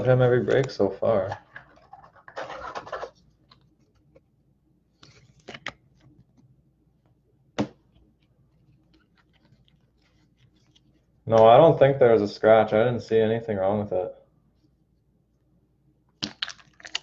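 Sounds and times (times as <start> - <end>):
plastic case scrape: 1.2 - 3.2
plastic cases rubbing and ticking: 1.4 - 3.6.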